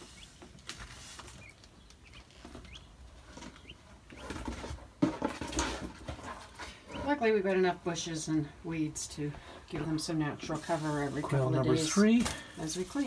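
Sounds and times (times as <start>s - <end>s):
small birds peeping: 0.0s - 4.8s, 6.6s - 7.3s
rustling of branches and litter: 0.0s - 7.1s.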